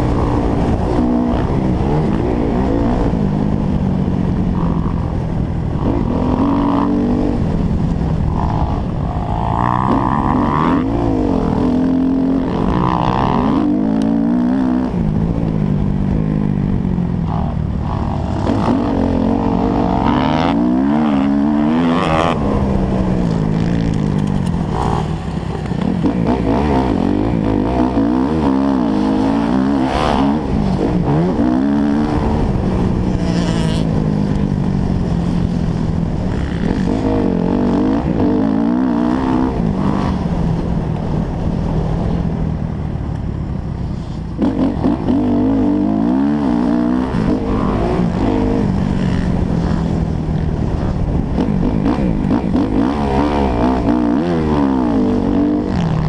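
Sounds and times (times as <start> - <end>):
low wind rumble: 0.0 - 56.0
motocross bike engine revving: 4.5 - 7.6, 8.2 - 34.4, 44.4 - 56.0.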